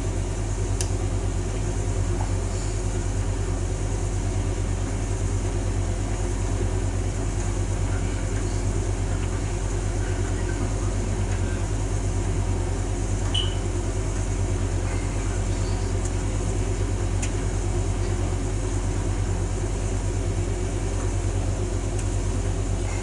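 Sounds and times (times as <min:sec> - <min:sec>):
dryer drum tumbling clothes: 0:00.0 - 0:23.0
motor hum: 0:00.0 - 0:23.0.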